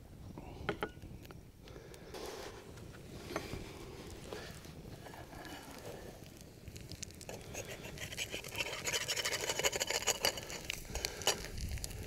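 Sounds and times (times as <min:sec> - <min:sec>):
eggs sizzling in a skillet: 0:03.2 - 0:12.0.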